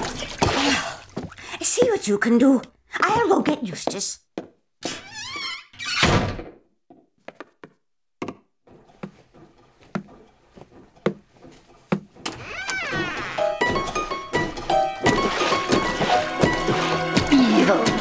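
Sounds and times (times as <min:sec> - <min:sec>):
squeaky door sliding open: 0:04.8 - 0:06.4, 0:12.1 - 0:16.9.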